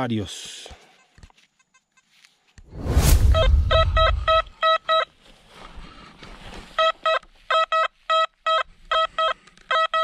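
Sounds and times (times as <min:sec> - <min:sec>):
loud low rumble: 0:02.8 - 0:04.5
metal detector beeping: 0:03.3 - 0:05.1, 0:06.8 - 0:10.0.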